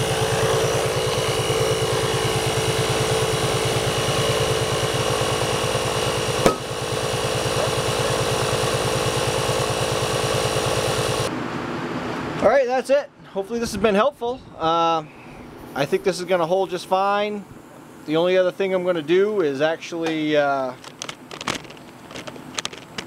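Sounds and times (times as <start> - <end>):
air compressor pulsing: 0.0 - 11.3
tire bead popping: 4.6 - 8.0, 20.8 - 23.0.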